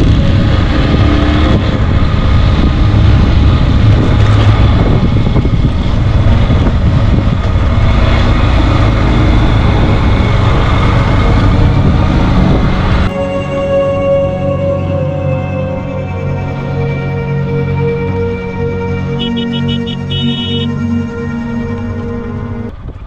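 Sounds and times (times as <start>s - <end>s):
motorcycle engine running: 0.0s - 13.1s
wind and road noise: 0.0s - 23.0s.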